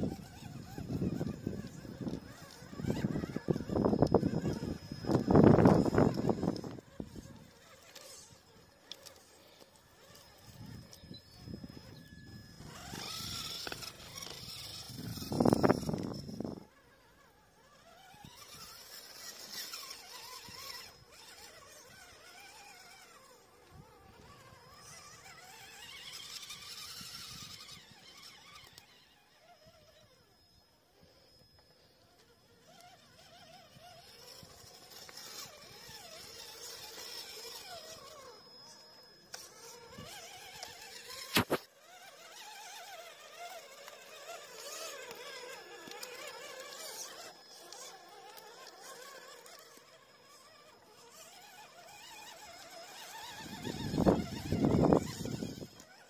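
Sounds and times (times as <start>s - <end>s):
electric motor and gears whining: 0.0s - 56.0s
sharp click: 41.3s - 41.7s.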